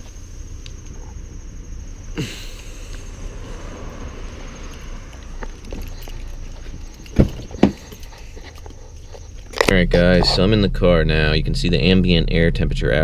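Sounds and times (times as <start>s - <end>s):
insects trilling: 0.0s - 13.0s
low rumble on microphone: 9.2s - 13.0s.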